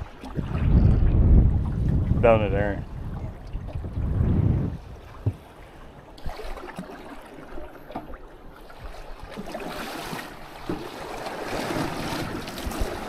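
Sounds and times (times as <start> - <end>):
wind buffeting microphone: 0.0 - 6.6
waves splashing against boat: 0.0 - 13.0.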